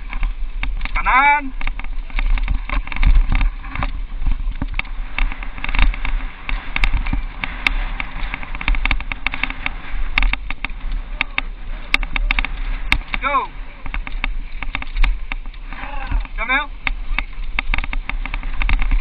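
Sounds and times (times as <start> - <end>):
bike rattling over bumps: 0.0 - 19.0
wind on microphone: 0.0 - 19.0.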